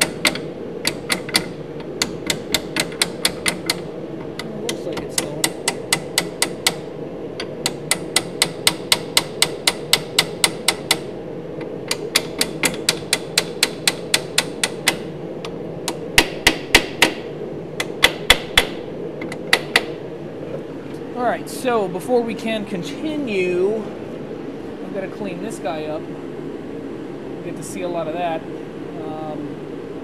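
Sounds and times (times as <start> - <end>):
hammer tapping metal: 0.0 - 11.1, 11.8 - 15.1, 15.9 - 20.0
steady hum: 0.0 - 30.0.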